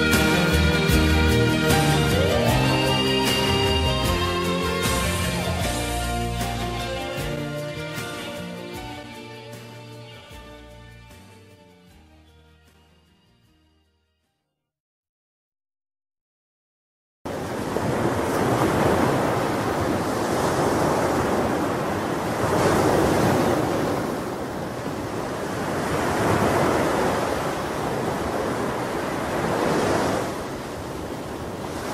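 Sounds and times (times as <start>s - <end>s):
sea surf rushing: 0.0s - 10.3s, 17.3s - 31.9s.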